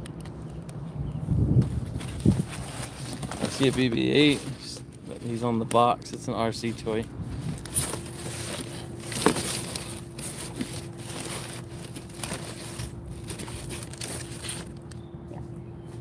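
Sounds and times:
cardboard boxes rustling and scraping: 1.6s - 5.6s, 6.5s - 14.9s.

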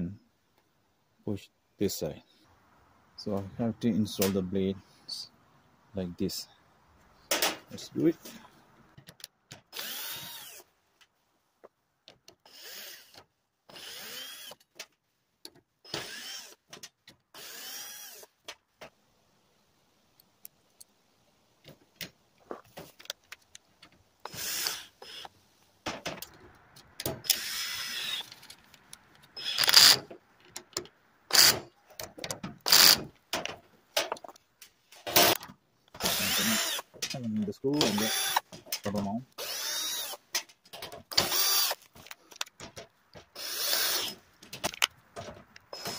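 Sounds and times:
cordless drill whining: 9.7s - 10.6s, 12.4s - 14.6s, 15.9s - 16.6s, 17.4s - 18.3s, 24.2s - 25.3s, 27.2s - 28.4s, 29.4s - 30.0s, 31.3s - 31.6s, 32.6s - 33.0s, 36.0s - 36.9s, 37.8s - 38.4s, 39.4s - 40.2s, 41.1s - 41.8s, 43.4s - 44.2s.

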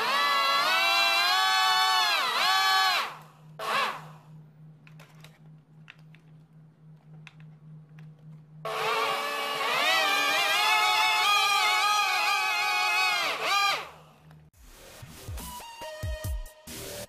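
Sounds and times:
electric motors whining: 0.0s - 4.5s, 7.2s - 14.4s
faint hum: 3.1s - 8.7s.

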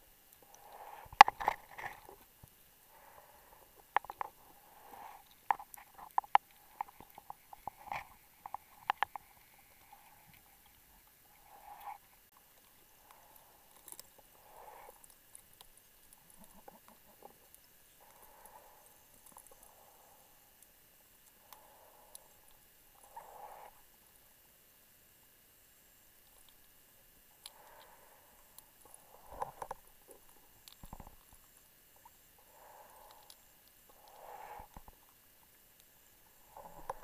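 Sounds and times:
muffled underwater clicks and knocks: 1.0s - 2.6s, 3.7s - 10.8s, 29.2s - 32.1s.

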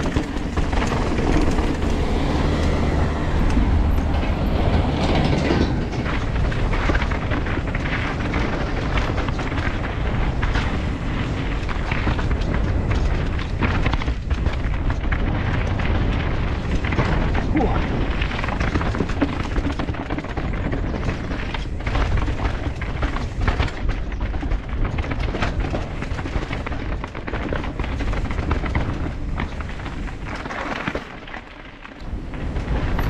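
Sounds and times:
heavy low rumble: 0.0s - 24.3s, 32.0s - 33.0s
bike tyre rumble on dirt: 0.0s - 33.0s.

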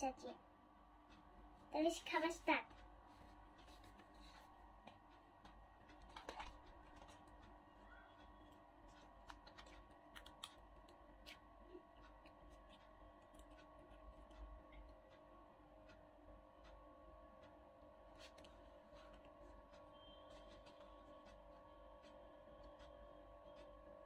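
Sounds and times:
low room hum: 0.0s - 24.0s
crunchy food bites: 8.1s - 15.2s.

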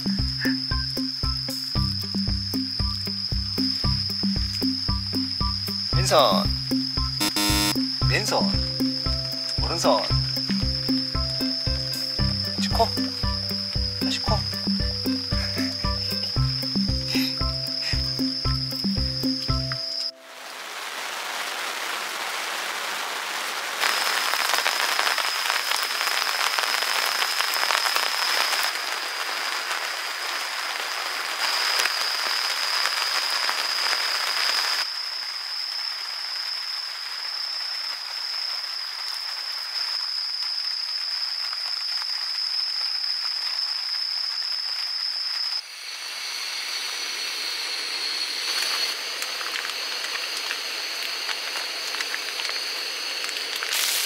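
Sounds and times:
steady rain hiss: 0.0s - 54.0s
steady high-pitched tone: 7.2s - 20.2s, 45.6s - 53.4s.

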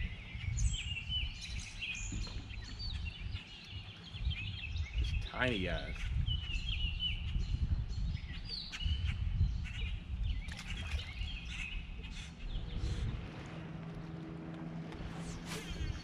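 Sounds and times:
songbirds chirping: 0.0s - 16.0s
low rumble: 5.9s - 16.0s
steady low hum: 9.2s - 16.0s.

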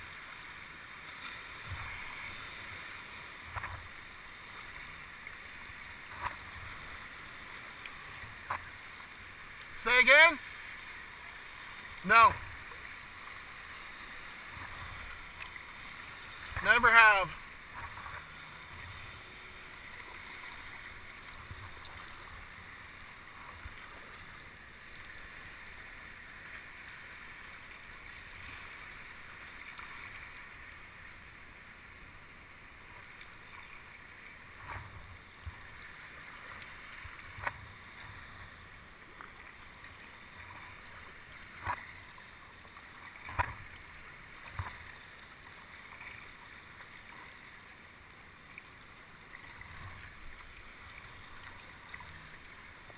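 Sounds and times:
sea water washing: 0.0s - 52.9s.

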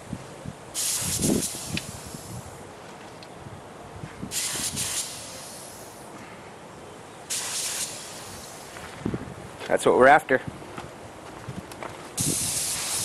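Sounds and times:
spray gun hissing: 0.8s - 2.6s, 4.3s - 6.1s, 7.3s - 8.8s, 12.2s - 13.0s.

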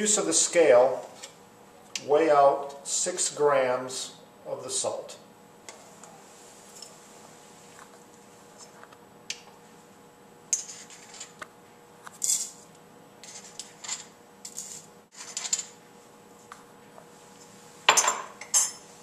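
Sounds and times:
metal spatula scraping ceramic mortar: 13.2s - 15.6s.

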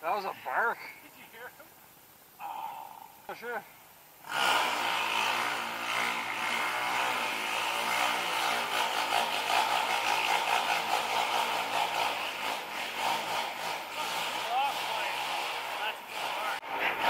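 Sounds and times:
dirt bike engine running: 6.2s - 15.3s.

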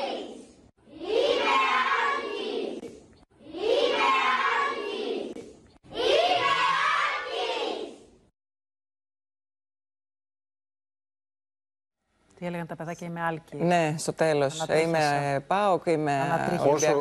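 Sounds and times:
children chanting in unison: 0.0s - 8.1s.

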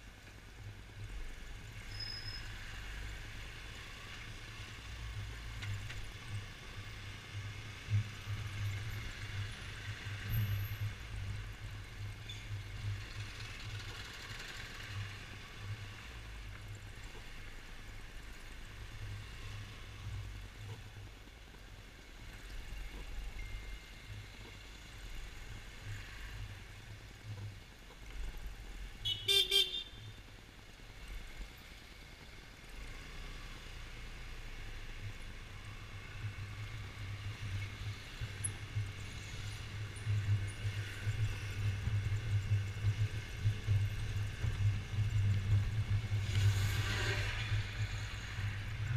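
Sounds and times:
wind: 0.0s - 48.9s
scooter horn toot: 29.0s - 30.2s.

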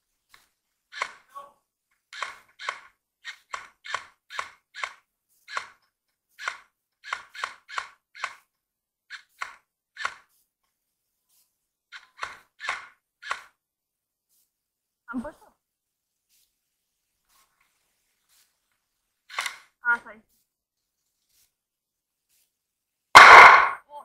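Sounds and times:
airsoft gun shots: 23.2s - 23.8s.

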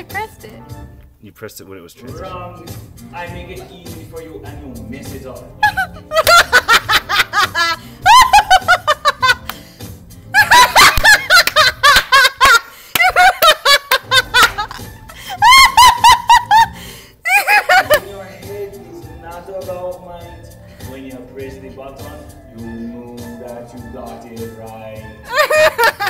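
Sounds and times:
woman laughing hard: 5.6s - 9.5s, 10.4s - 18.0s, 25.3s - 26.0s.

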